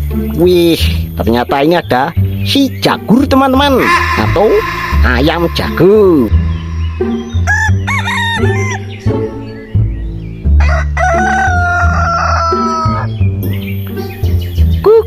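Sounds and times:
background music: 0:00.0 - 0:15.0
rooster crowing: 0:10.6 - 0:13.0.

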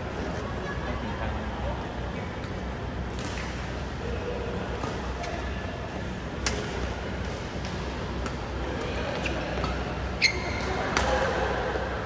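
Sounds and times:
rackets hitting shuttlecock: 0:02.4 - 0:03.6, 0:04.7 - 0:05.4, 0:06.3 - 0:11.6.

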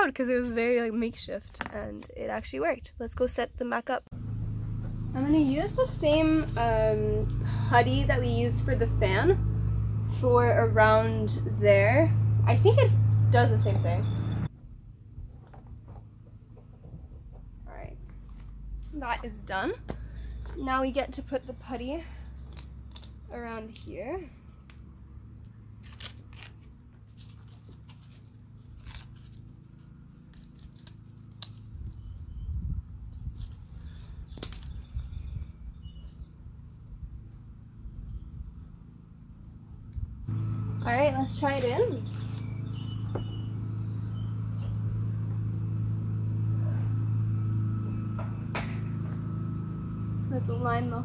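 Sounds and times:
low mechanical hum: 0:00.0 - 0:51.0
low rumbling: 0:02.8 - 0:51.0
tape tearing off roll: 0:22.4 - 0:23.9, 0:25.8 - 0:31.7.

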